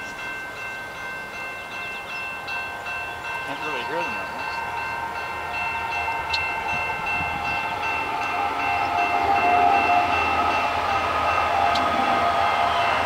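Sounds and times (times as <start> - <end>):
low train rumble: 0.0 - 13.0
train air horn: 7.3 - 13.0.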